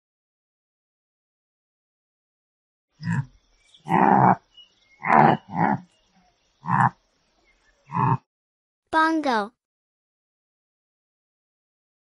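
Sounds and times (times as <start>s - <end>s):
antelope calling: 3.0s - 7.0s.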